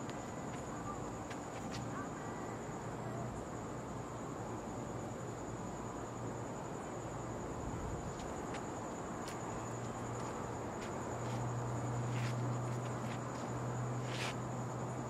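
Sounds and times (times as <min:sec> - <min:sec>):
high-pitched insect trill: 0:00.0 - 0:15.0.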